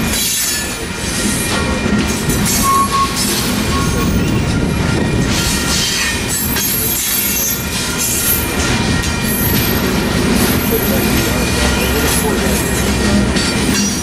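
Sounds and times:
freight train wheels rumbling on rail: 0:00.0 - 0:14.0
high wheel squeal: 0:02.4 - 0:08.6.

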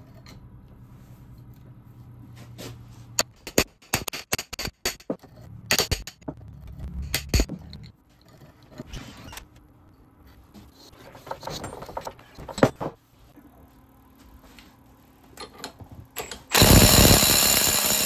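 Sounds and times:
hammer striking metal wrench: 0:03.2 - 0:06.3
wrench scraping and rattling: 0:03.2 - 0:08.9.

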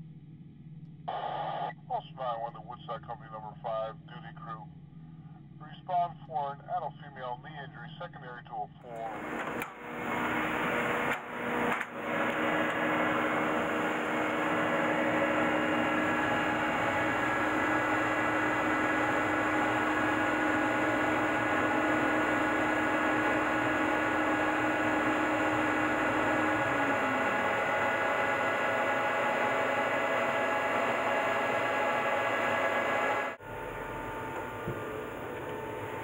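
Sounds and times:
industrial machinery whirring: 0:08.9 - 0:36.0.

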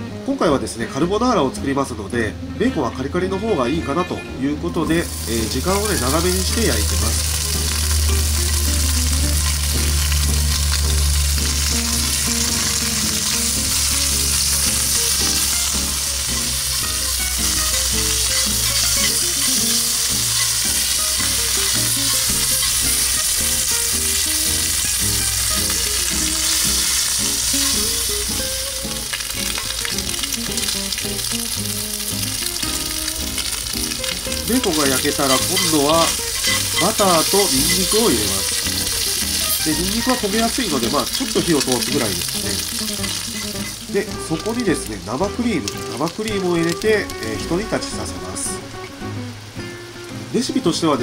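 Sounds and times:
bacon sizzling in a skillet: 0:04.9 - 0:48.7.

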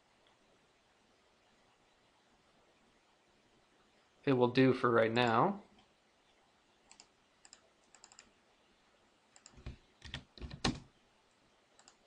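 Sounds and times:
mouse clicks: 0:06.9 - 0:08.3.

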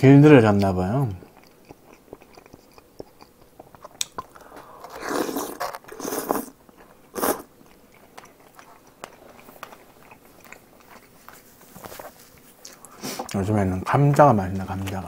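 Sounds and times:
quiet chewing with mouth clicks: 0:00.4 - 0:15.0
noodles slurped: 0:03.9 - 0:07.5.

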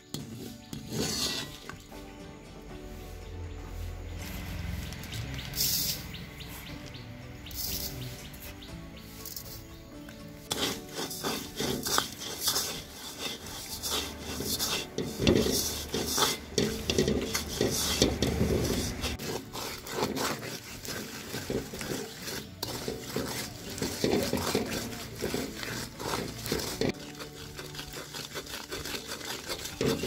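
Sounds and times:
spoon scraping metal wok: 0:00.0 - 0:30.0.

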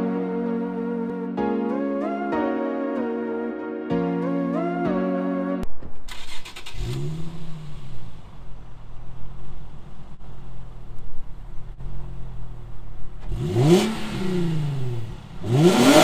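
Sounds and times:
car engine starting and idling: 0:05.8 - 0:16.0
engine revving: 0:06.1 - 0:09.2, 0:13.2 - 0:16.0.

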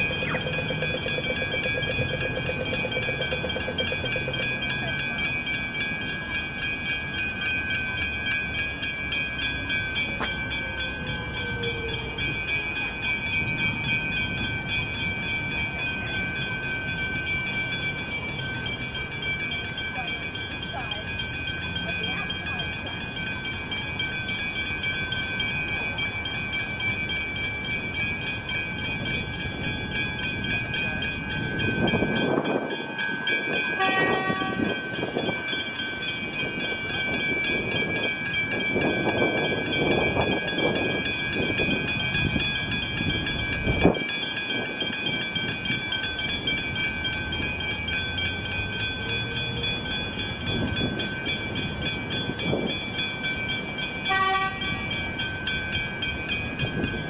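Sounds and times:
electric train passing: 0:00.0 - 0:57.0
level crossing bells ringing: 0:00.0 - 0:57.0
train horn: 0:33.8 - 0:34.8, 0:54.1 - 0:55.0.

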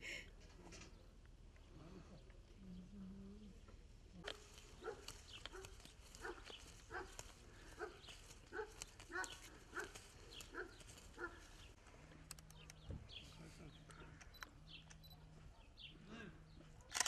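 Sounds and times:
sharp clicks: 0:04.2 - 0:07.3, 0:12.1 - 0:12.9.

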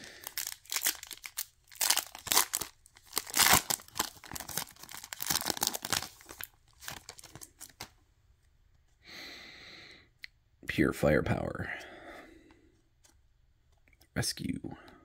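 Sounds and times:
foil wrapper tearing and crinkling: 0:00.0 - 0:07.9.

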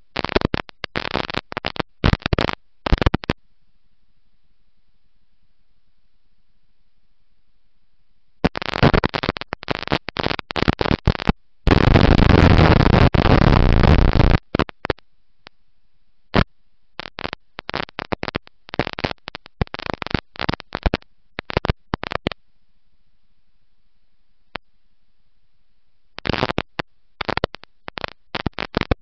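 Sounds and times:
harsh distorted crackling: 0:00.0 - 0:03.4, 0:08.4 - 0:15.0, 0:16.4 - 0:22.4, 0:26.2 - 0:29.0.

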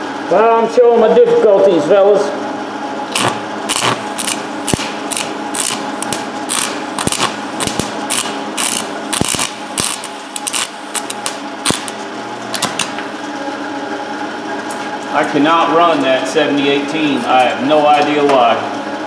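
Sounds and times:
steady hum: 0:00.0 - 0:19.0
welding arc crackling and popping: 0:03.1 - 0:13.1.

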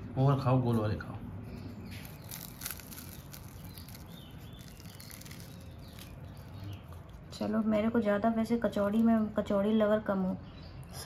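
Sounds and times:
crisp fried crust crackling: 0:01.6 - 0:07.6.

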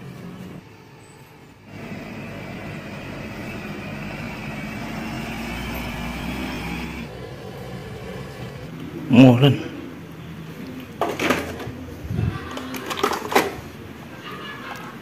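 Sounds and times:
diesel truck engine driving past: 0:01.6 - 0:10.6.

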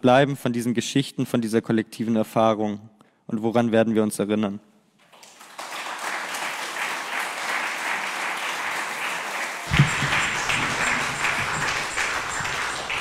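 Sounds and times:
audience applauding: 0:05.0 - 0:13.0
thump: 0:09.7 - 0:12.6.

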